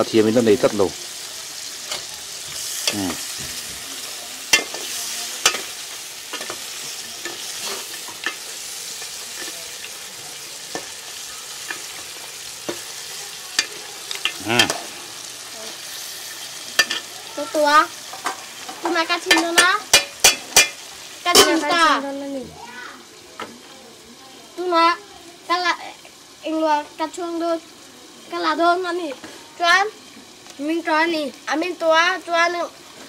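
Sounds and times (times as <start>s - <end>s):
metal spoons scraping a pot: 13.6s - 14.9s, 16.2s - 17.1s.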